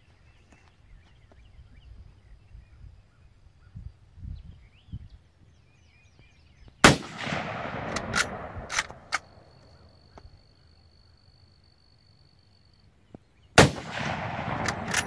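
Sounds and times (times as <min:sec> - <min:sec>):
rifle shot echoing: 0:06.8 - 0:09.9, 0:13.6 - 0:15.0
rifle bolt metallic clicks: 0:07.1 - 0:09.4, 0:13.6 - 0:15.0.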